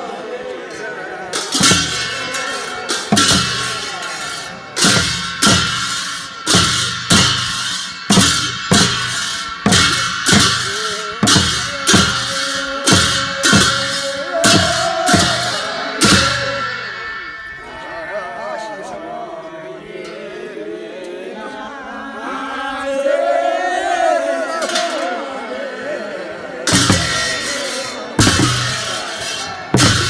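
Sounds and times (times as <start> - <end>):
hand drums beaten with sticks: 1.4 - 16.9, 26.7 - 30.0
hand cymbals clashing: 1.4 - 18.0, 26.7 - 30.0.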